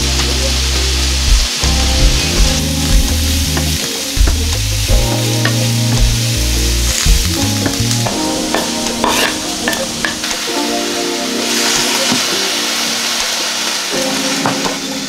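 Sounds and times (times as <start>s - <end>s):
background music: 0.0s - 15.0s
vegetables sizzling in a frying pan: 0.0s - 15.0s
wooden spatula scraping a pan: 9.0s - 10.2s.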